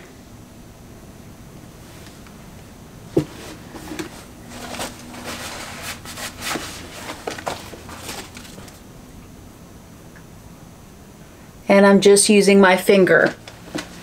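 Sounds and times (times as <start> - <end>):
soft rustles and light taps: 3.1 - 8.8, 13.2 - 14.0.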